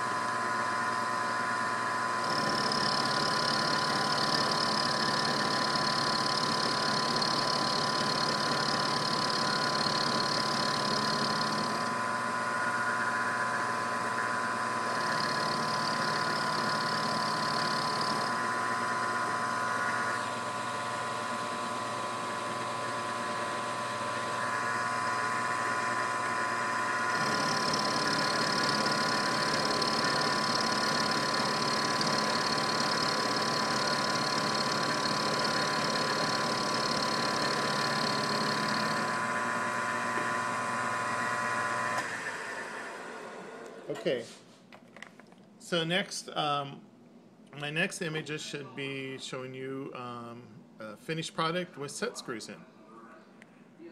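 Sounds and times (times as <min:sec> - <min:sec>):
higher machine whine: 0:00.0 - 0:43.1
milling machine whine: 0:00.0 - 0:43.8.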